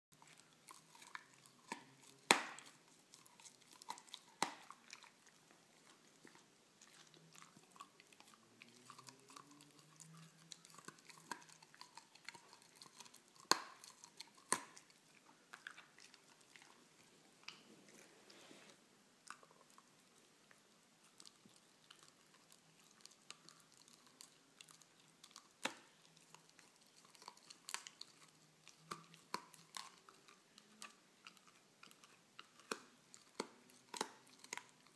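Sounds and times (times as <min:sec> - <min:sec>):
dog chewing hard bone: 0:00.2 - 0:18.2.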